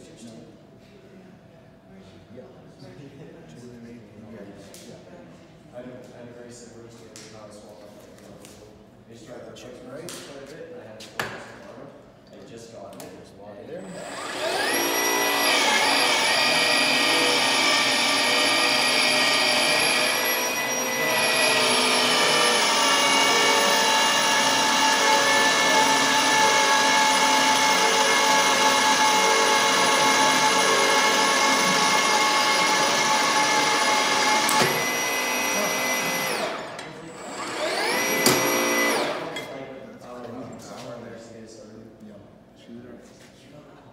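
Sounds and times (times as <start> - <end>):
motor running with high whine: 13.8 - 39.5.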